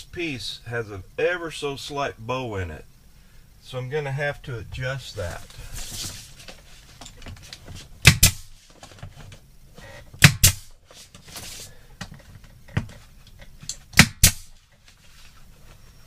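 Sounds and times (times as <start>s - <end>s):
nail gun firing: 8.0s - 8.5s, 10.2s - 10.7s, 13.9s - 14.5s.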